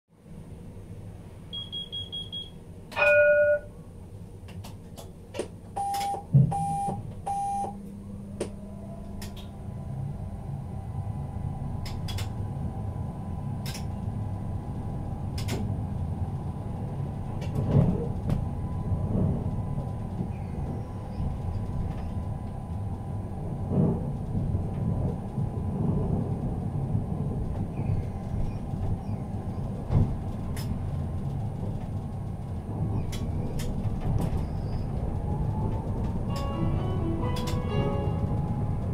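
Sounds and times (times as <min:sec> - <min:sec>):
loud beeps: 0:01.6 - 0:02.5, 0:05.8 - 0:07.8
high beeps: 0:01.6 - 0:03.6, 0:05.8 - 0:07.8
tram wheels rumbling on rails: 0:02.6 - 0:38.9
loud signal tone: 0:05.8 - 0:07.8
traction drive humming: 0:07.0 - 0:38.9
clicks over the track: 0:11.8 - 0:12.4, 0:15.4 - 0:15.7, 0:37.3 - 0:37.7.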